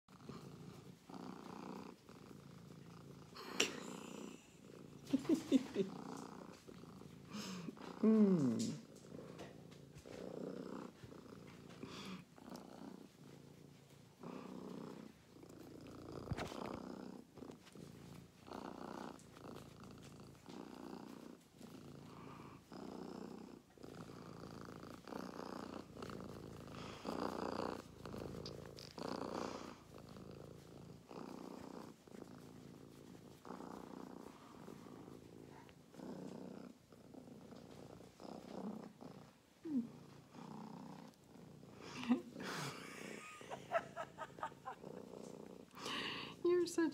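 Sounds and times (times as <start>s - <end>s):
cat purring: 0.0s - 46.9s
soft clicks and rustles: 4.5s - 22.9s, 23.7s - 42.4s.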